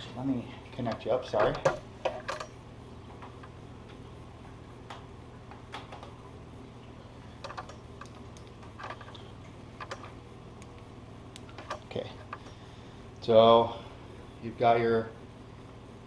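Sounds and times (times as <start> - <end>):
small objects clicking: 7.4 - 12.5.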